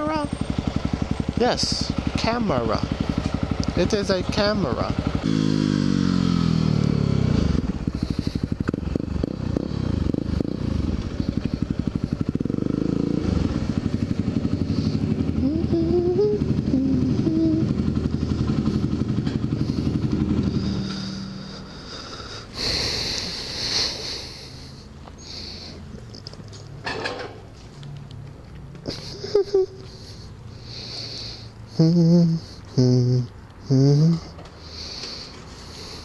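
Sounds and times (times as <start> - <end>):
motorcycle engine thumping: 0.3 - 6.1, 7.5 - 15.6, 16.3 - 21.4.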